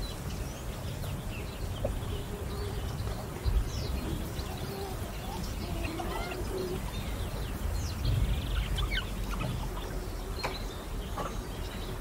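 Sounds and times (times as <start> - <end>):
wild birds chirping: 0.0 - 12.0
low rumble: 6.8 - 10.3.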